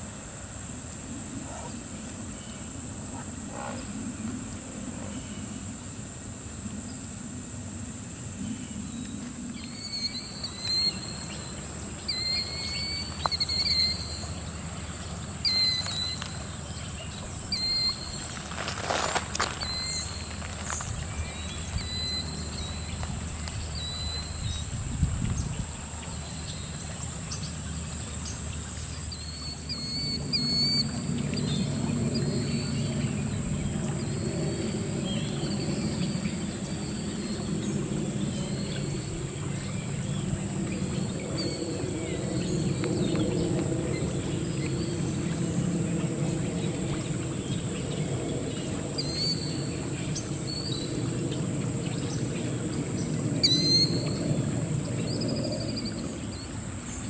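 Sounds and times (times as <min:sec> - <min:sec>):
high-pitched insect drone: 0:00.1 - 0:57.0
bird-like chirps: 0:15.4 - 0:16.4.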